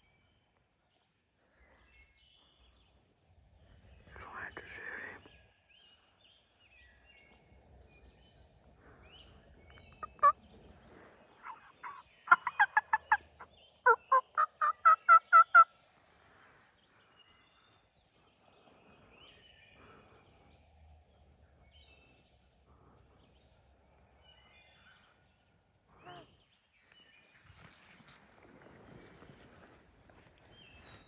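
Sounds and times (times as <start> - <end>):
wild turkey calls: 7.9 - 15.8.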